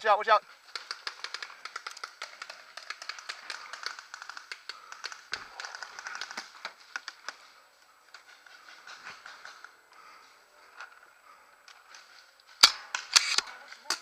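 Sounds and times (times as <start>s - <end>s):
paintball markers firing: 0.7s - 7.4s, 12.6s - 14.0s.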